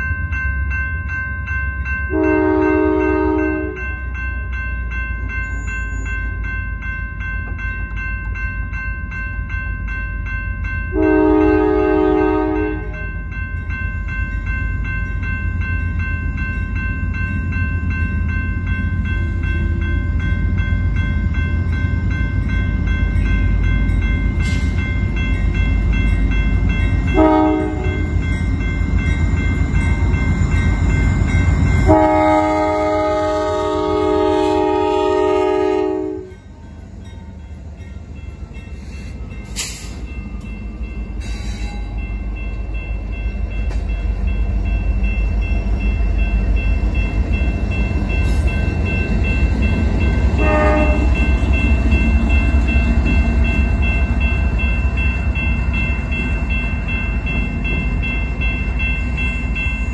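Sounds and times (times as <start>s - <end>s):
diesel locomotive rumble: 0.0s - 59.9s
locomotive air horn blasts: 2.1s - 3.8s, 11.0s - 13.0s, 27.2s - 28.0s, 31.9s - 36.4s, 50.4s - 51.2s.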